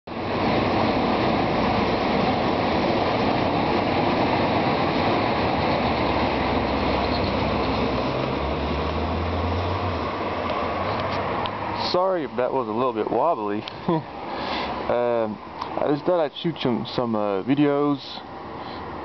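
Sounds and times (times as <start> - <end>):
train wheels rumbling on track: 0.2 - 10.7.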